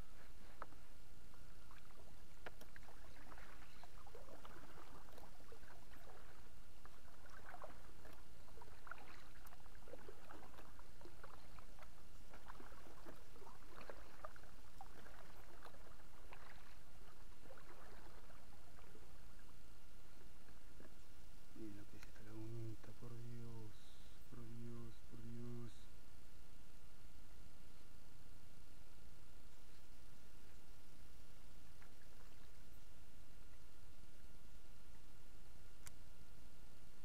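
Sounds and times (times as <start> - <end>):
kayak paddle splashing: 0.0 - 21.0
low steady rumble: 0.0 - 37.0.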